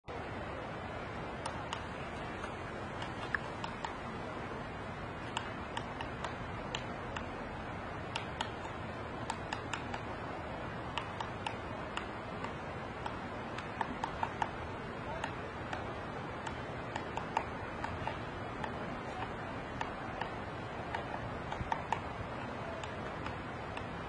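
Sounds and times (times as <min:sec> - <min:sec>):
steady background hiss: 0:00.0 - 0:24.0
woodpecker tapping on trunk: 0:01.5 - 0:04.0, 0:08.0 - 0:10.1, 0:10.9 - 0:24.0.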